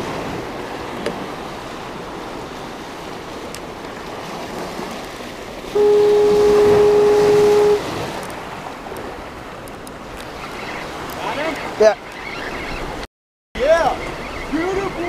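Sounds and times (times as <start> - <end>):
surf washing against rocks: 0.0 - 12.1
horn blast: 5.7 - 7.9.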